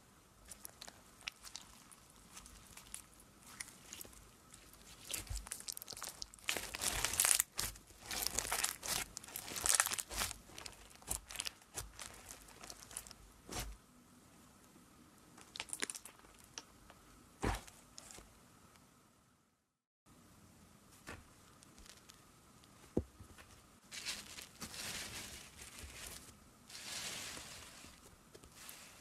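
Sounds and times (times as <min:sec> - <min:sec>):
slime crackling and crunching: 0:00.5 - 0:13.7, 0:15.4 - 0:16.6.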